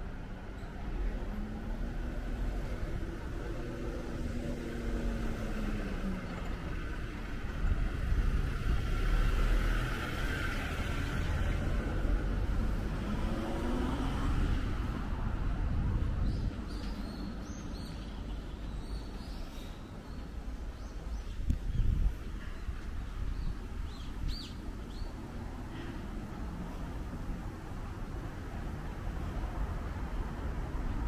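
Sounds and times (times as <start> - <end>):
car passing by: 1.2 - 17.0.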